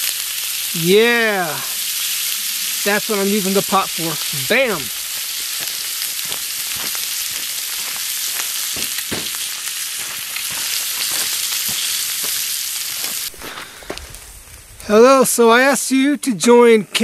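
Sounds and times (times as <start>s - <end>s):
steak sizzling in butter: 0.0s - 15.7s.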